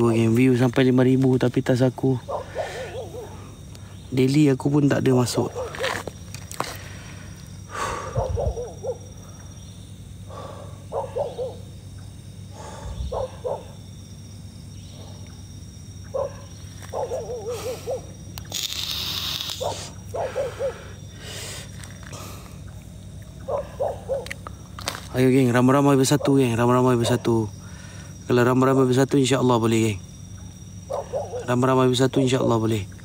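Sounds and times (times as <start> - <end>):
brief hiss: 18.4 - 19.9.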